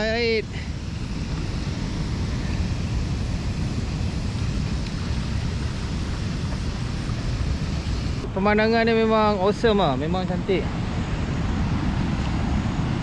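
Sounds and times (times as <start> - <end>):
flowing river: 0.0 - 13.0
wind buffeting the microphone: 0.0 - 13.0.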